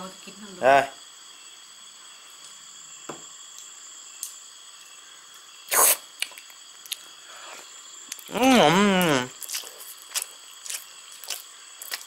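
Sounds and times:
faint high hiss: 0.0 - 11.8.

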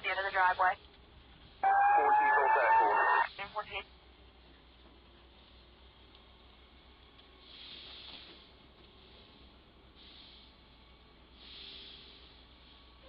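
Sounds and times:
faint radio scanner hiss: 0.0 - 1.0, 2.0 - 4.2.

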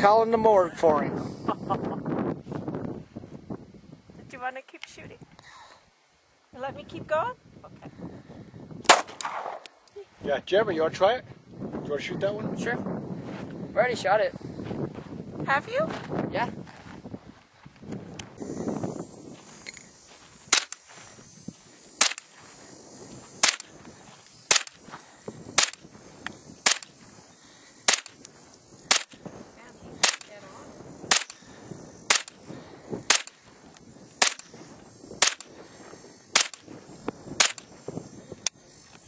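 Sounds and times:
gunshots: 8.9 - 9.6, 22.0 - 22.2, 23.4 - 23.7, 27.9 - 28.2, 28.9 - 29.1, 30.0 - 30.3, 31.1 - 31.4, 32.1 - 32.3, 33.1 - 33.3, 35.2 - 35.4, 36.4 - 36.6, 37.4 - 37.6.

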